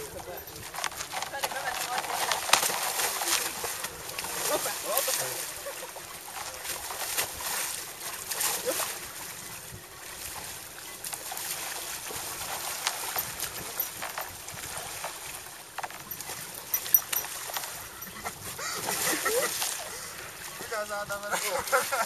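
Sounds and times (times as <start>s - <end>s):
water sloshing and trickling: 0.0s - 22.0s
thin ice cracking and clinking: 0.2s - 3.9s.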